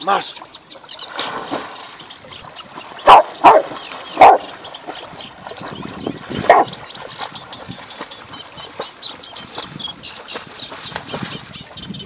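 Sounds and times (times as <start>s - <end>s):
water splashing: 0.0s - 12.0s
dog barking: 3.1s - 4.5s, 6.5s - 6.7s.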